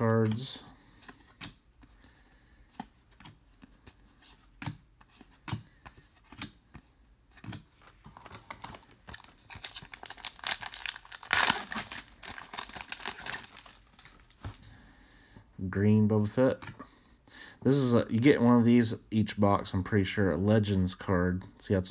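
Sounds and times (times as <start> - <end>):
wrapper crinkling: 8.2 - 14.6
foil pack tearing: 8.7 - 13.8.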